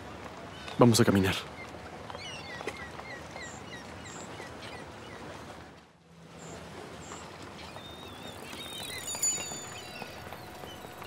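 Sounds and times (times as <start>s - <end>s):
steady background noise: 0.0s - 11.0s
high bird chirps: 7.7s - 11.0s.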